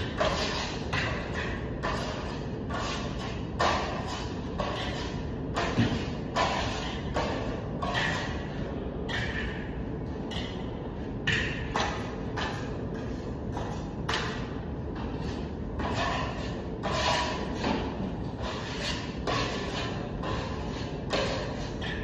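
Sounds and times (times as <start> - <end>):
trowels scraping plaster: 0.0 - 9.7, 15.2 - 22.0
low background hum: 0.0 - 22.0.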